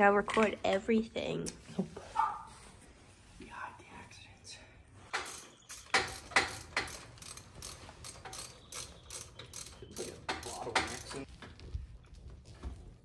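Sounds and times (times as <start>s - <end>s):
ratchet clicking: 5.2s - 11.2s.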